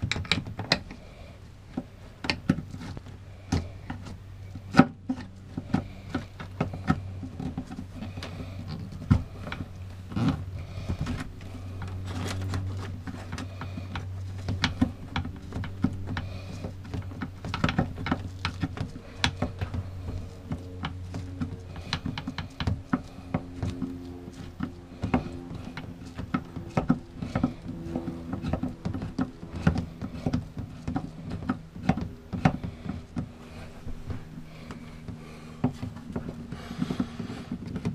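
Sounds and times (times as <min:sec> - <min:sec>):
small clicks taps and knocks: 0:00.0 - 0:01.0
steady low hum: 0:00.0 - 0:37.9.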